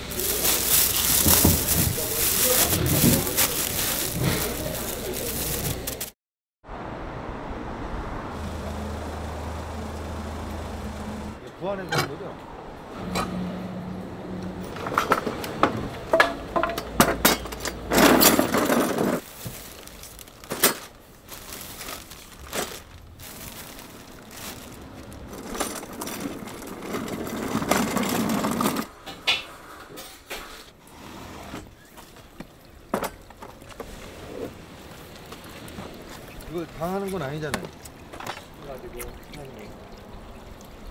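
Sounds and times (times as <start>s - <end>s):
utensils and containers clattering: 0.0s - 6.1s, 14.7s - 21.0s, 21.8s - 30.4s, 35.8s - 38.8s.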